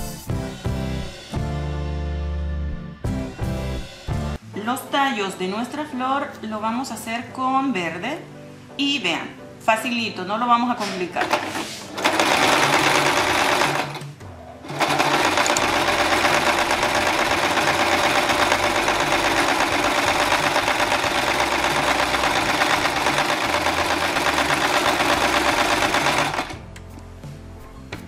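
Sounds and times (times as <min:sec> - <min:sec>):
sewing machine running: 0:11.2 - 0:14.0, 0:14.6 - 0:26.6.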